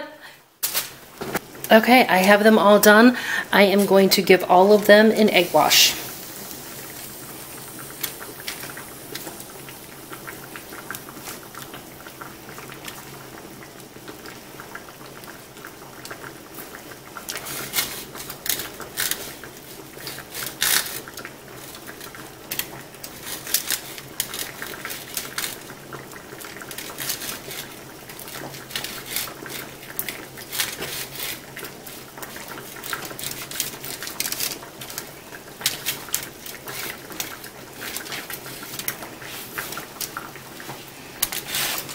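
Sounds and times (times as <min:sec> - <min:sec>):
faint steady hum: 0:01.4 - 0:17.4.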